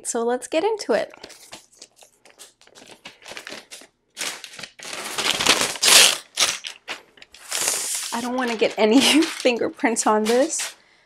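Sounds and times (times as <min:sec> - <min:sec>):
plastic wrap peeling and crinkling: 0:01.1 - 0:09.6.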